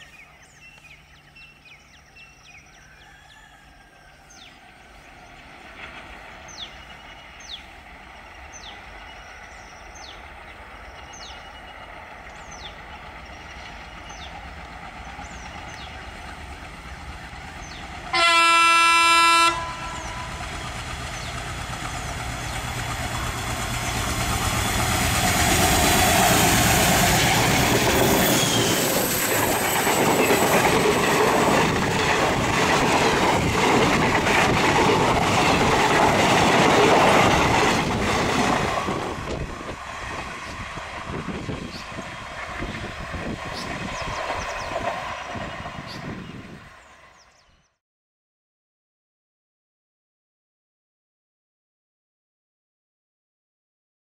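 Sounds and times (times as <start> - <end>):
diesel locomotive engine: 0.0 - 47.4
locomotive horn blast: 18.1 - 20.4
train coaches clattering over rails: 20.0 - 45.6.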